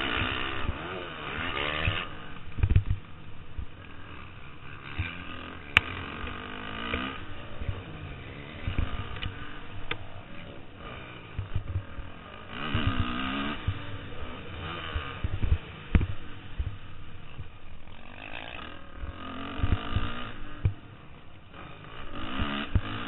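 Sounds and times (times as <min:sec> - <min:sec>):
dirt bike engine revving: 0:00.0 - 0:23.0
low thuds from bumps: 0:01.4 - 0:03.8, 0:11.3 - 0:17.9, 0:19.0 - 0:20.9.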